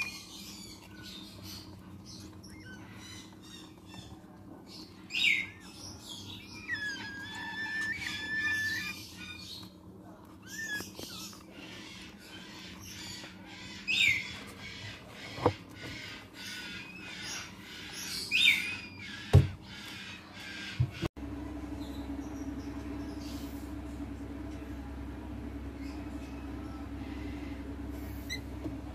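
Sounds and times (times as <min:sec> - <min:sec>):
cockatoo chick begging calls: 0:05.1 - 0:09.8.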